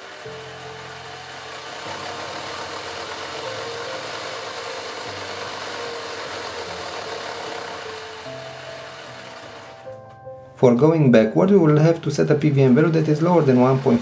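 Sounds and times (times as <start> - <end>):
toy car electric motor running: 0.0 - 10.0, 12.2 - 14.0.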